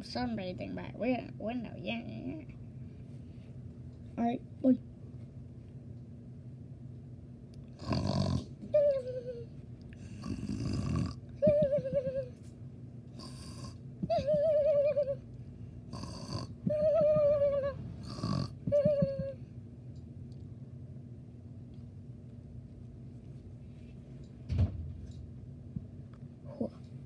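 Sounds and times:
person imitating snoring: 0:07.8 - 0:08.5, 0:10.0 - 0:11.2, 0:13.2 - 0:13.8, 0:15.9 - 0:17.0, 0:17.6 - 0:18.6.

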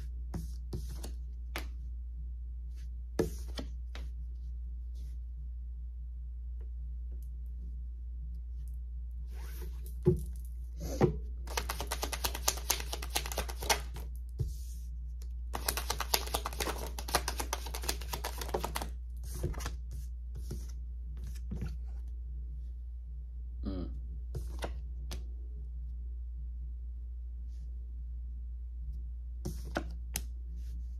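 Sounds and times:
steady low hum: 0:00.0 - 0:12.0, 0:18.1 - 0:30.9
cards shuffling rapidly: 0:11.5 - 0:14.1, 0:15.5 - 0:19.8.

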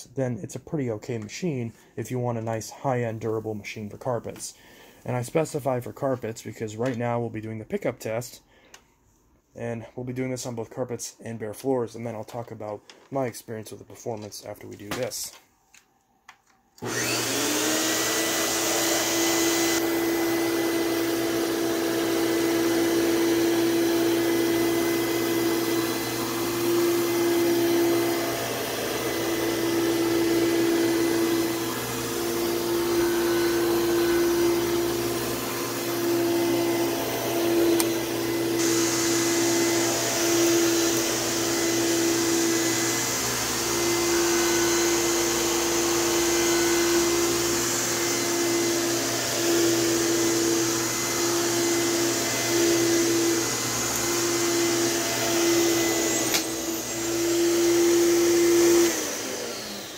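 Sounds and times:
upright vacuum cleaner running: 0:16.8 - 0:59.9.

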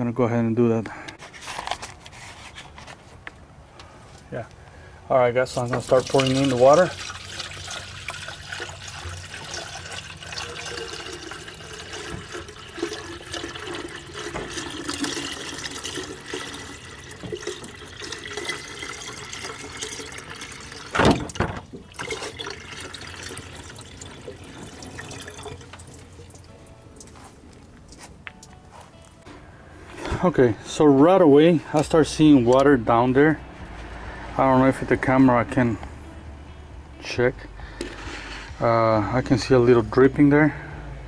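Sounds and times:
water pouring from a jug: 0:05.5 - 0:27.1.

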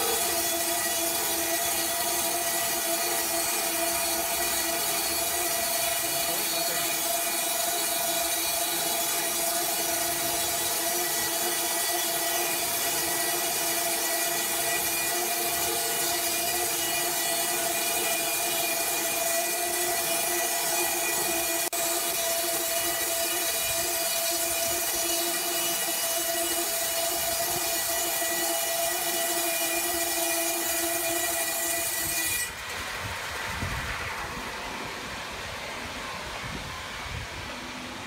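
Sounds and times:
sawmill blade cutting log: 0:00.0 - 0:32.8.

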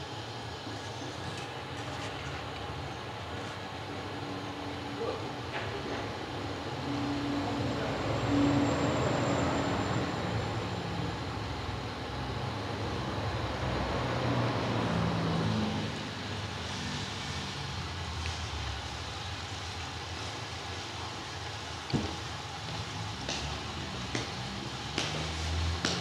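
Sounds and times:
hiss: 0:15.3 - 0:26.0.

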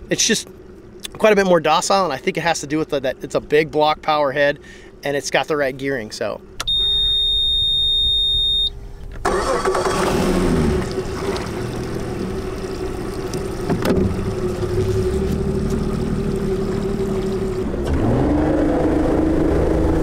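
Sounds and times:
outboard motor running: 0:09.3 - 0:20.0.

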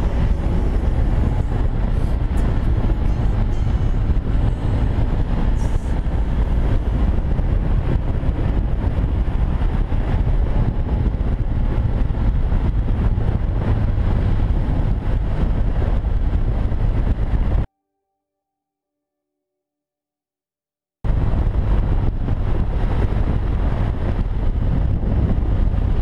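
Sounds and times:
motorcycle engine rumble: 0:00.0 - 0:17.7
wind rushing on microphone: 0:00.0 - 0:17.7, 0:21.1 - 0:26.0.

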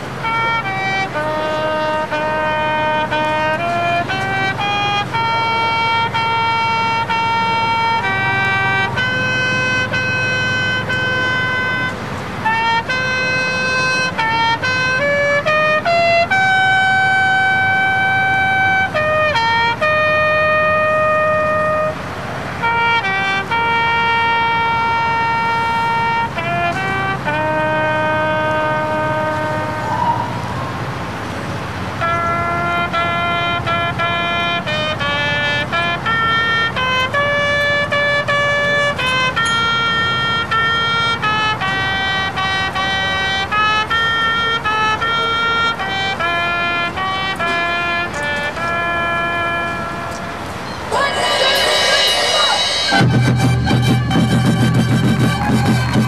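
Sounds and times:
brass band holding long chords: 0:00.0 - 0:56.0.

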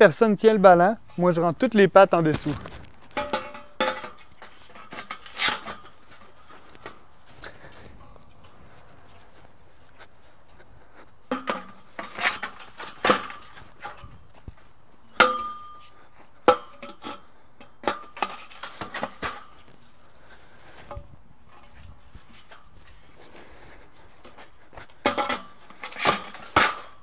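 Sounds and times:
metal tubes clanking: 0:03.0 - 0:07.0, 0:15.1 - 0:19.8.

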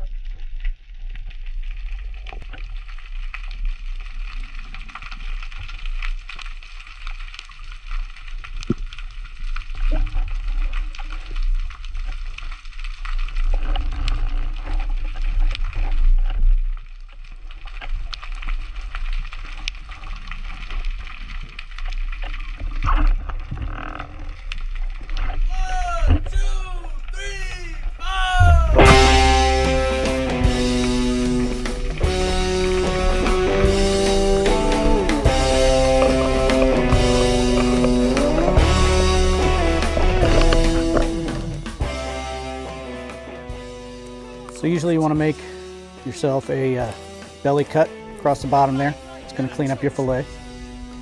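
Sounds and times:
underwater watery rush and gurgling: 0:00.0 - 0:25.5, 0:28.9 - 0:43.8
low rumble: 0:28.2 - 0:44.1.

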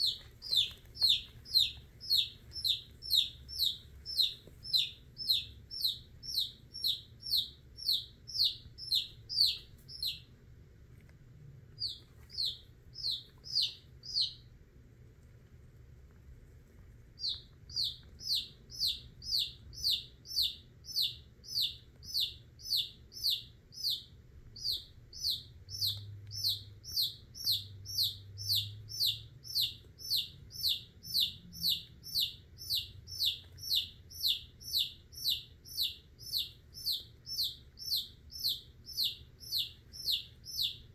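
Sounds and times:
chick peeping: 0:00.0 - 0:10.4, 0:11.7 - 0:14.6, 0:17.2 - 0:40.9.

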